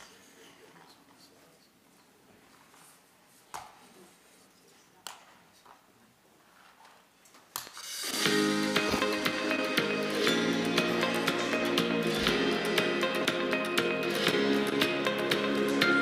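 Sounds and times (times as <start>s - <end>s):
music: 7.8s - 16.0s.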